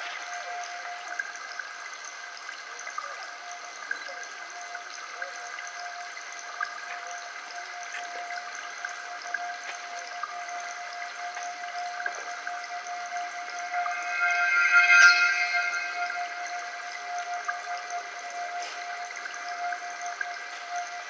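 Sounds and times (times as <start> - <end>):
even hiss like running water: 0.0 - 21.0
steady high tones: 12.5 - 21.0.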